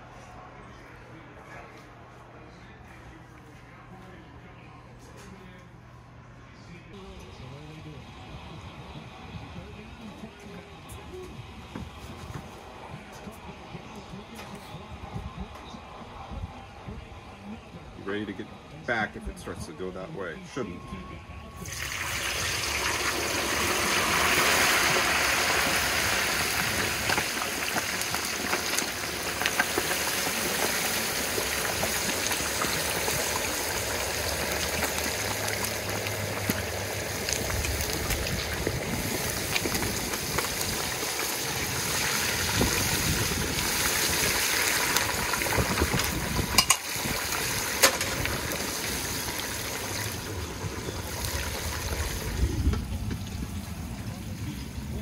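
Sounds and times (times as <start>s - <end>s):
oil boiling and sizzling: 21.6s - 55.0s.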